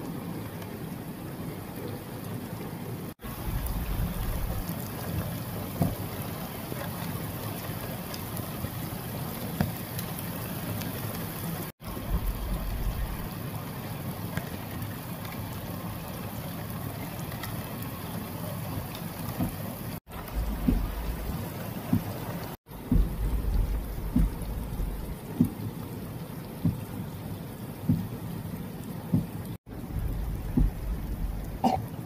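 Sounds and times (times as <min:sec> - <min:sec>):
heavy rain pouring: 0:00.0 - 0:32.0
low rumbling gusts: 0:03.2 - 0:05.3, 0:11.9 - 0:13.3, 0:20.1 - 0:22.0, 0:22.7 - 0:25.8, 0:29.1 - 0:31.7.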